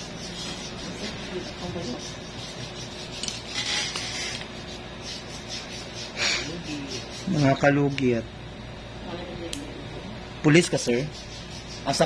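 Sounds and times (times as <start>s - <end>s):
metal tool scraping toenail: 3.0s - 4.5s.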